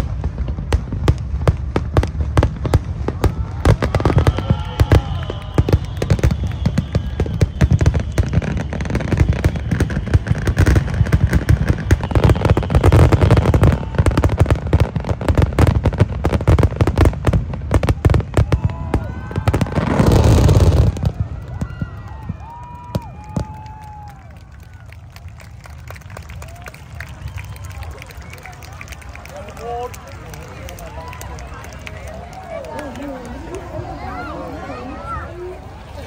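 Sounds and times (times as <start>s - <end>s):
deep fireworks booms: 0.0s - 24.2s
fireworks bangs and crackles: 0.0s - 36.0s.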